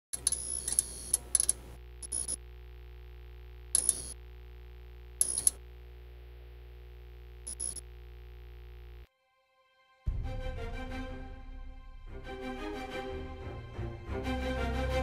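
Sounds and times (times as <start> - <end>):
crackling clicking bursts: 0.1 - 2.4, 3.6 - 4.2, 5.2 - 5.7.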